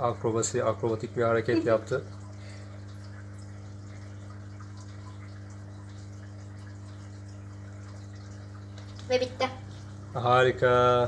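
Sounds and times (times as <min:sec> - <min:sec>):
bubbling trickling water: 0:00.0 - 0:11.0
fish tank hum: 0:00.0 - 0:11.0.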